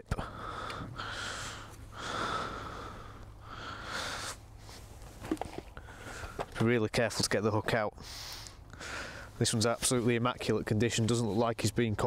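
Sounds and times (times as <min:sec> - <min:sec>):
man breathing: 0:00.1 - 0:05.1, 0:05.7 - 0:06.5, 0:08.0 - 0:09.4.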